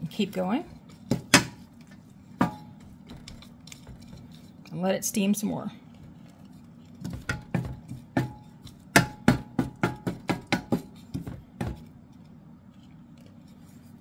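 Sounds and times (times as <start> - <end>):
wooden spatula scraping skillet: 0.0 - 4.8.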